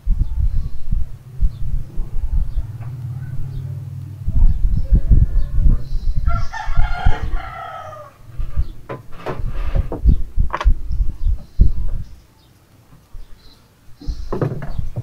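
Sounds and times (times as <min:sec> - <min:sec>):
rooster crowing: 0:04.9 - 0:08.7
sharp clicks: 0:10.5 - 0:10.8.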